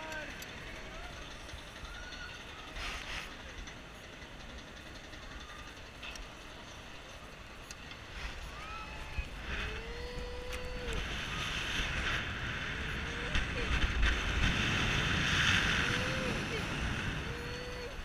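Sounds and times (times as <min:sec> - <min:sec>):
wind buffeting microphone: 0:00.0 - 0:18.0
short gliding cries: 0:08.1 - 0:14.0, 0:15.6 - 0:18.0.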